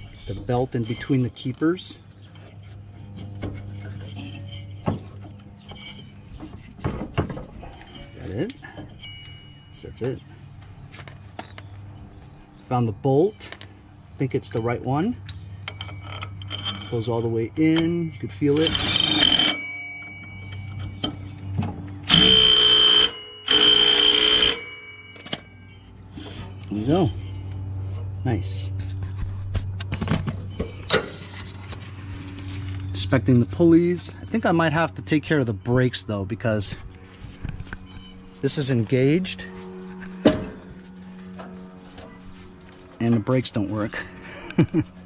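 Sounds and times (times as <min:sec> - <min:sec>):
low steady hum: 0:00.0 - 0:45.0
metallic clinks and knocks: 0:14.5 - 0:18.6, 0:19.2 - 0:22.0.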